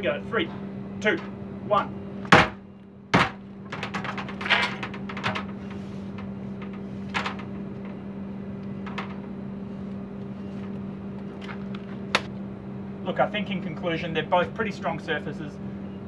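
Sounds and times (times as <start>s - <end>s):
steady low hum: 0.0s - 16.0s
sledgehammer knocking on metal sheeting: 2.3s - 4.2s.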